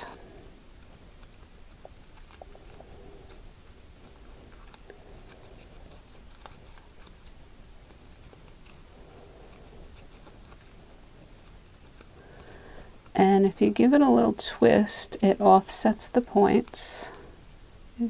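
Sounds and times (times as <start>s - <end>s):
ribbon rustling and crinkling: 0.0s - 13.2s.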